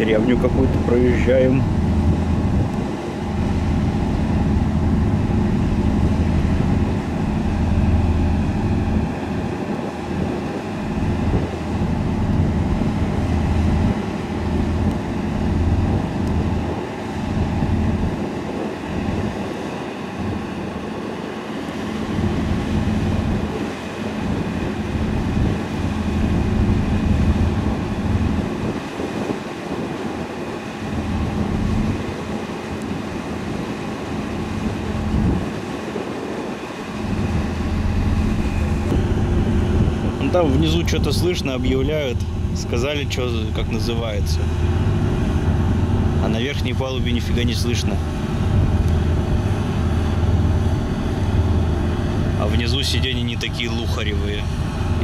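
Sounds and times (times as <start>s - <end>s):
low rumble: 0.0s - 18.2s, 24.8s - 28.7s, 36.8s - 55.0s
ship diesel engines droning: 0.0s - 55.0s.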